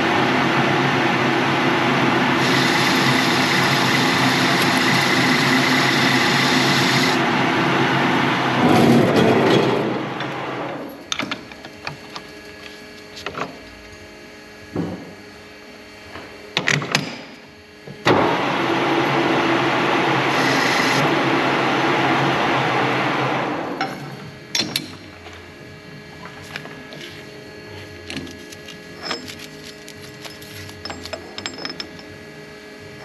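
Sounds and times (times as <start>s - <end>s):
lathe machine hum: 0.0s - 10.8s, 18.1s - 24.5s.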